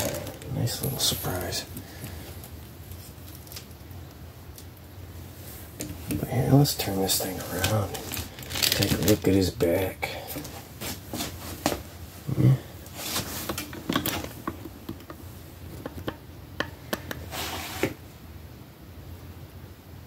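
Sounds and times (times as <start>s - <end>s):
plastic clicks and knocks: 13.5s - 17.2s.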